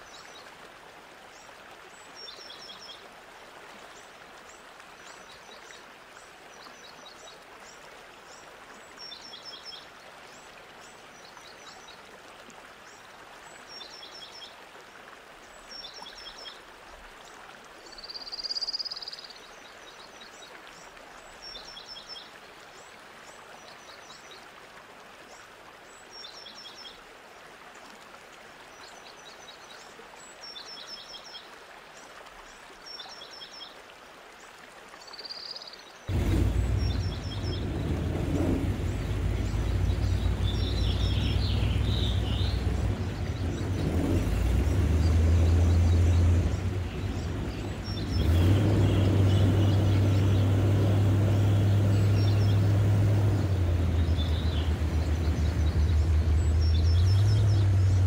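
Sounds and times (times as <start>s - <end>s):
bird chirping: 36.1s - 44.4s, 45.0s - 58.0s
airboat engine drone: 36.1s - 58.0s.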